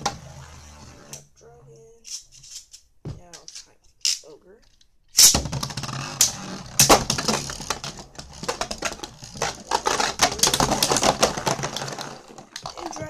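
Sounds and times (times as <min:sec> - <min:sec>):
tops rattling against plastic walls: 0:05.4 - 0:13.0.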